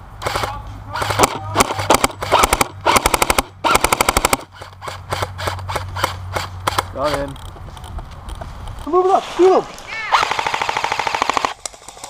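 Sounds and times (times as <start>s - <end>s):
airsoft guns firing: 0.2s - 6.9s, 10.1s - 12.0s.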